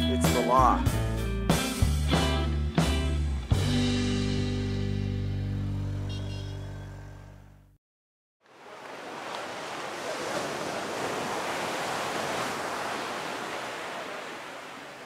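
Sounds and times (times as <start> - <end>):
ocean surf washing: 8.4 - 15.0.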